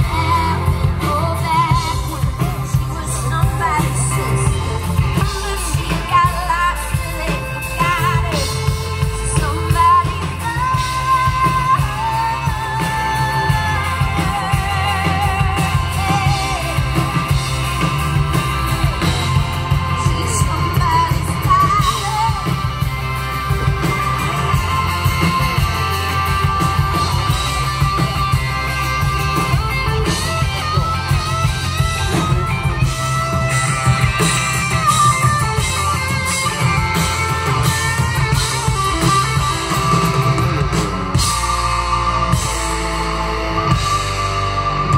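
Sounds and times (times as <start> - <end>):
woman singing: 0.0 - 17.6, 19.9 - 22.9
bass line: 0.0 - 44.9
electric guitar: 0.0 - 44.9.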